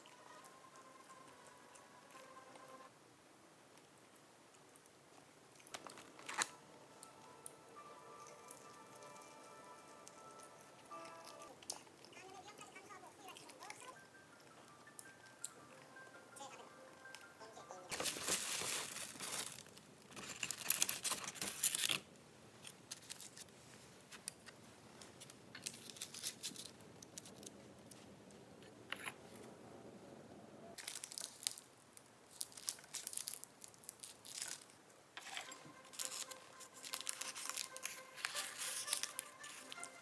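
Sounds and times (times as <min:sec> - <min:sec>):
paper liner crinkling: 0:05.6 - 0:06.6, 0:17.9 - 0:28.0, 0:32.3 - 0:40.0
plastic bag and paper box rustling: 0:05.7 - 0:06.6, 0:17.9 - 0:27.5, 0:30.8 - 0:31.7, 0:32.3 - 0:40.0.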